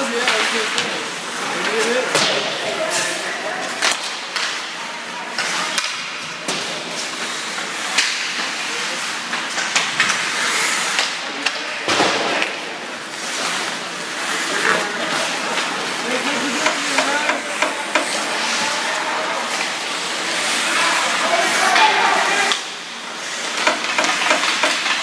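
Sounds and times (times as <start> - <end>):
hockey sticks and puck clacking: 0.0 - 4.7, 5.3 - 8.6, 9.2 - 25.0
skate blades scraping ice: 13.1 - 22.5
players calling out: 14.2 - 22.8.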